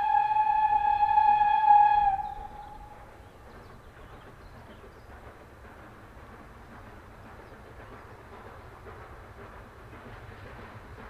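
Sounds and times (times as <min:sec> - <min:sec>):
steam locomotive whistle: 0:00.0 - 0:03.0
steam train rumbling: 0:00.0 - 0:11.0.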